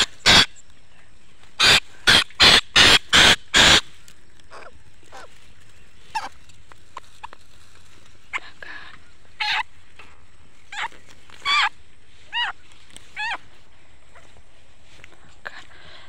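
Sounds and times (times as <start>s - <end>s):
bird screeching distress calls: 0.0s - 0.6s, 1.6s - 3.9s, 9.3s - 9.8s, 10.6s - 13.6s
faint clicks and rustles: 3.9s - 16.0s.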